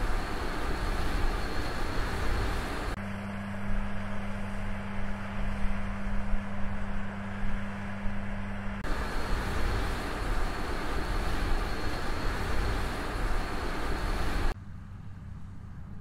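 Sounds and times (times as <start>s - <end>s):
combine harvester running: 0.0s - 15.4s.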